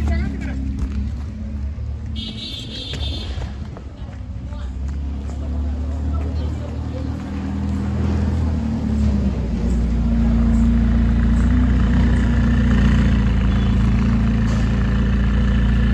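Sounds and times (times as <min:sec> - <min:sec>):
sports car engine pulling away: 0:05.2 - 0:15.9.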